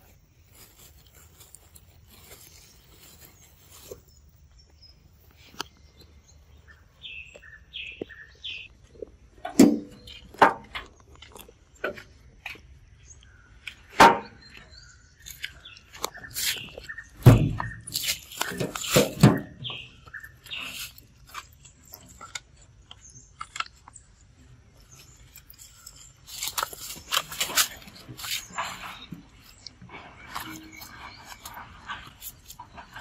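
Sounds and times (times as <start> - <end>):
bird chirps: 2.0 - 9.1, 9.7 - 33.0
knocks and thumps handling fruit: 8.9 - 12.8, 13.6 - 22.4, 24.9 - 33.0.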